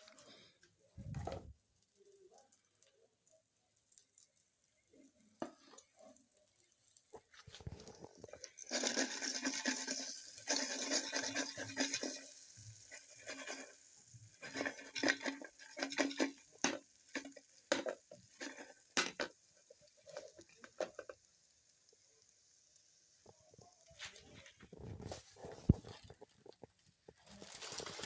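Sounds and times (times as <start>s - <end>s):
meat frying: 0.0s - 28.0s
utensil scraping metal pot: 7.2s - 21.2s.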